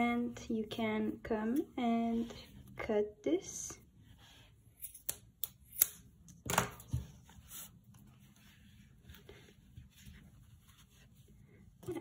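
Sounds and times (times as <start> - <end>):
scissors snipping yarn: 4.8 - 6.1.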